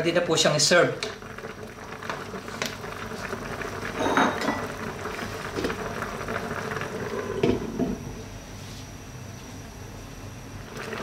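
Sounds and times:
broth bubbling in a pan: 0.0 - 8.6, 9.6 - 11.0
glass lid clinking on pan: 4.0 - 4.6
cookware clattering: 4.0 - 4.7.

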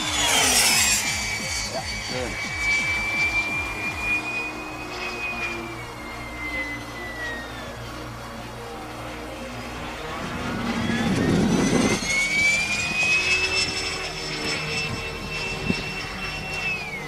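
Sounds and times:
electric ducted fan whining: 0.0 - 17.0.

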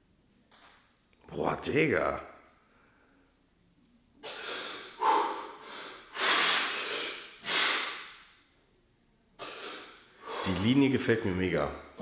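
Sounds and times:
man breathing heavily: 4.2 - 8.1, 9.4 - 10.6.

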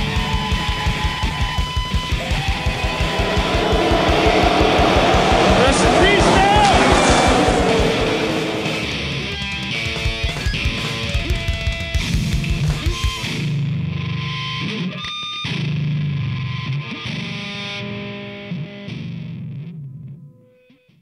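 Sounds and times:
distorted electric guitar: 0.0 - 9.8.

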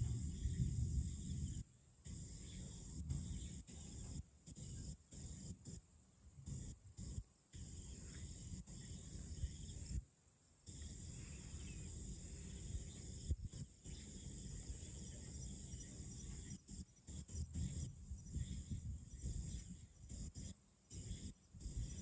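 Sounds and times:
crickets and insects chirring: 0.0 - 22.0.

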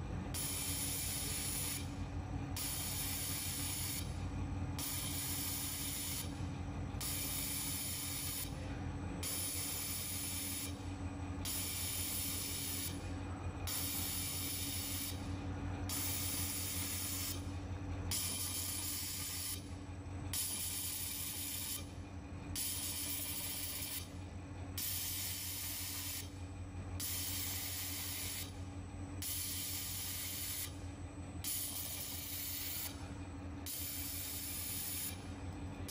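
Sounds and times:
low machine hum: 0.0 - 35.9
laser welding hiss: 0.4 - 1.9, 2.6 - 4.1, 7.0 - 8.5, 18.2 - 19.6, 22.6 - 24.0, 27.0 - 28.5, 29.3 - 30.7, 31.5 - 32.9, 33.7 - 35.2.

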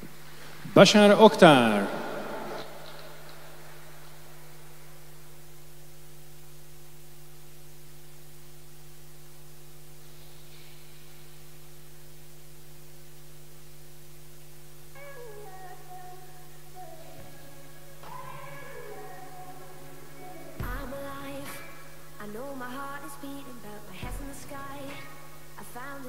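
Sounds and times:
electrical mains hum: 0.0 - 26.0
faint hiss: 0.0 - 26.0
faint music with singing: 14.9 - 26.0.

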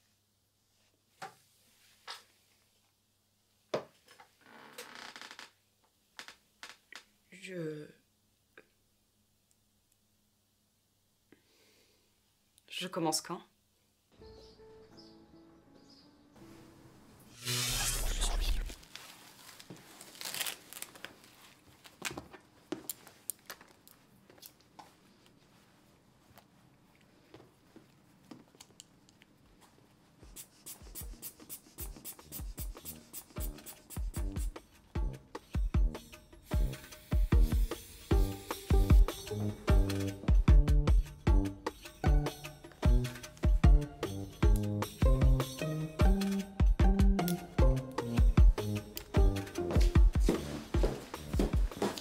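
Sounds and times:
velcro tearing open: 17.3 - 19.0, 19.9 - 22.1.

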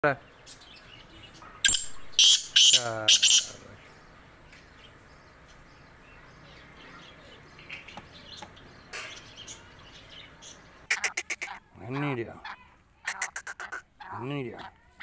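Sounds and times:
faint bird chirps: 0.0 - 14.2
bird calling harsh notes: 1.5 - 3.7, 10.8 - 14.3.

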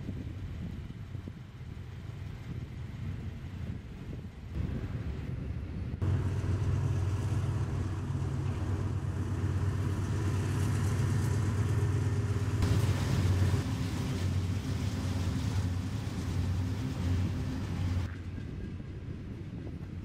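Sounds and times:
locomotive engine drone: 0.0 - 20.0
passing train hiss: 6.0 - 18.1.

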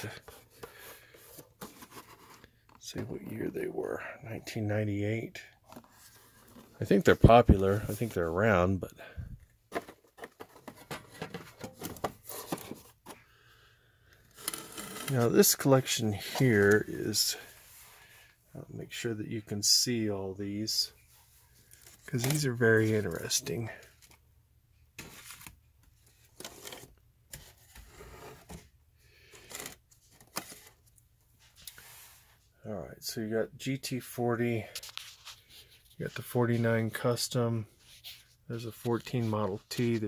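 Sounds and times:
cardboard and plastic packaging scraping: 0.0 - 2.6, 9.7 - 13.2, 14.3 - 16.9, 21.5 - 24.2, 25.0 - 30.8.

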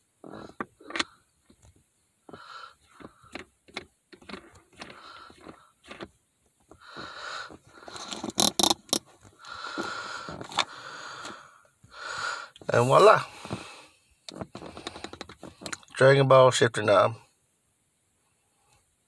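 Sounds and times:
plastic knob scraping on threads: 3.0 - 6.2, 7.0 - 9.1, 14.3 - 16.0.

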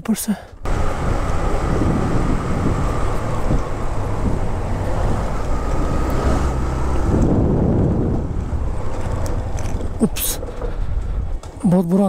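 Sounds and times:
wind noise on microphone: 0.6 - 11.7
motorcycle engine running: 0.7 - 10.0.

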